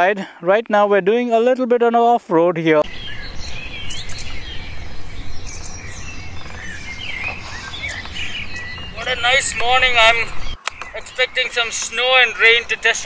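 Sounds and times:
birds chirping: 2.8s - 13.0s
steady low rumble: 2.9s - 10.6s.

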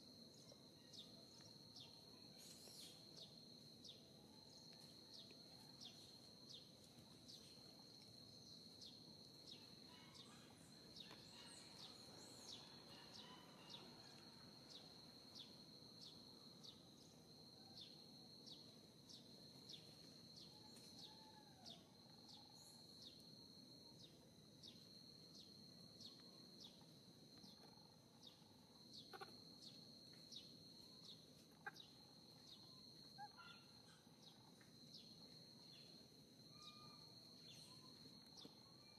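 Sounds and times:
insect trill: 0.0s - 38.9s
faint bird calls: 27.4s - 30.4s, 31.0s - 34.4s, 36.5s - 38.9s.

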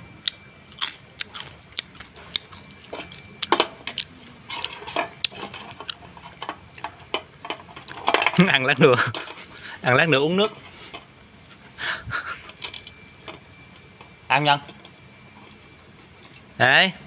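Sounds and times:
crunching crisp fish: 0.2s - 6.9s.

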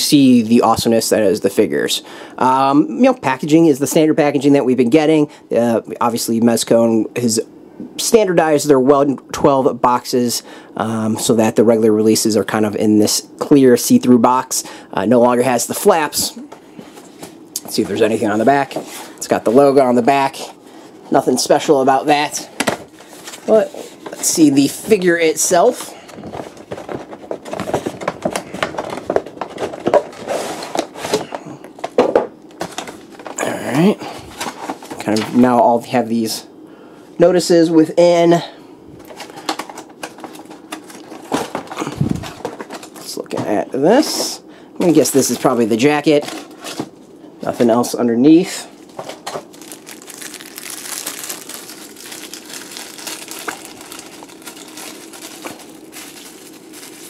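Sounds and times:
plastic packaging crackling: 48.9s - 57.0s
plastic bag crinkling: 49.0s - 57.0s.

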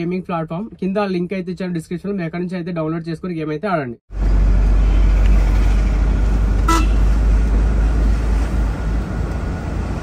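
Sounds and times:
lorry rumbling on road: 4.1s - 10.0s
horn toot: 6.6s - 7.1s.

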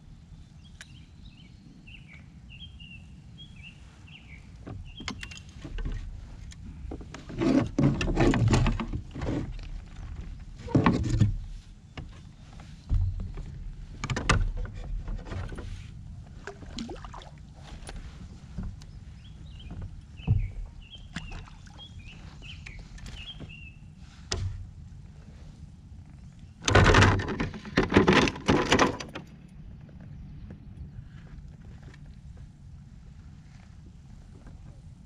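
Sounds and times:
low wind rumble: 0.0s - 35.0s
knocks and clatter on kayak hull: 4.6s - 23.7s, 24.3s - 24.8s, 26.6s - 30.6s
bird chirping: 18.9s - 23.9s.

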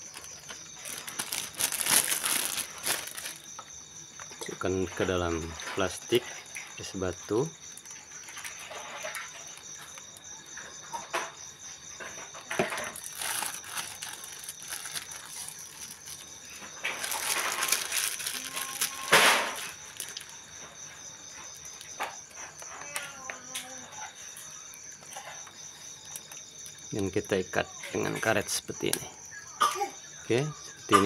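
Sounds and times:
plastic bag crinkling: 0.0s - 3.7s, 12.6s - 20.5s.

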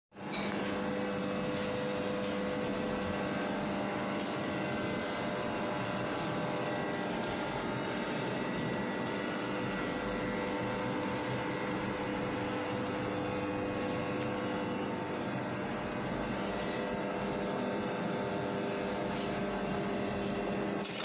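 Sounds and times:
mechanical hum with whirr: 0.2s - 21.0s.

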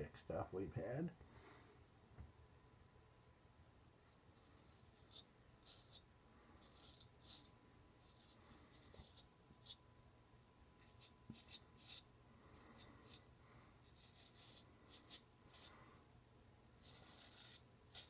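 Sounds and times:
razor scraping stubble: 4.3s - 6.0s, 6.6s - 9.8s, 10.8s - 15.8s, 16.8s - 18.0s.

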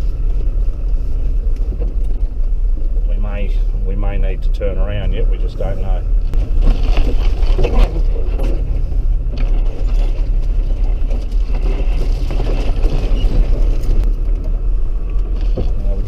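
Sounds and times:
engine and tyre rumble: 0.0s - 16.0s
knocks and rattles: 6.2s - 16.0s.

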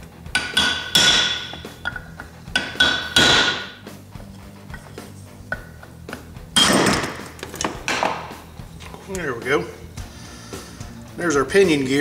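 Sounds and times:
hammer striking metal punch: 0.3s - 3.8s.

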